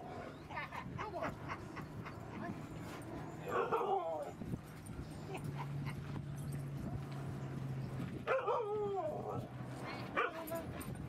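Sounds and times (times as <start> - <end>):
dogs milling and sniffing: 0.0 - 11.0.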